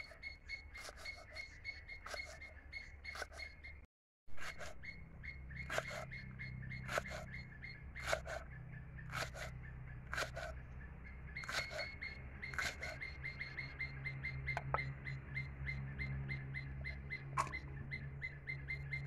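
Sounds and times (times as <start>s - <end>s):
fast even chirping: 4.4s - 10.6s, 11.3s - 15.0s
knife chopping on wooden board: 5.7s - 6.1s, 6.9s - 7.2s, 8.0s - 8.4s, 9.1s - 9.5s, 10.1s - 10.5s.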